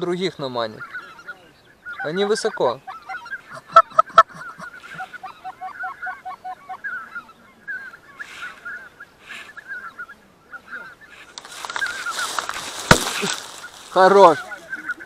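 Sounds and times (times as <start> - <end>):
geese honking: 0.4 - 15.0.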